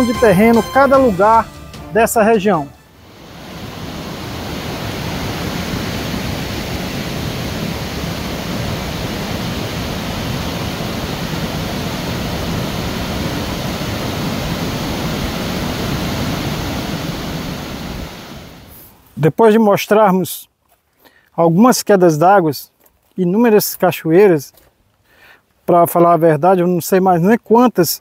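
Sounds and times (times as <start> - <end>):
water rushing over waterfall: 3.1 - 18.7.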